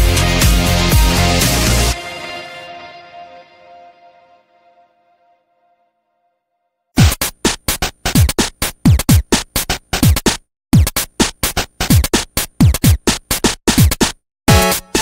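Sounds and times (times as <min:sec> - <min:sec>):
electronic music with drum machine: 0:00.0 - 0:02.4, 0:07.0 - 0:15.0.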